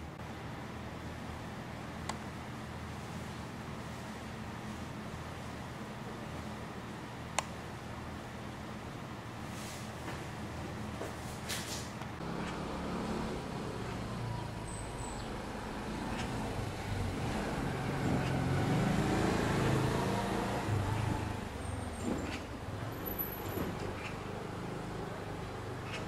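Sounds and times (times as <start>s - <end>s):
vehicle engine rumble: 11.7s - 26.0s.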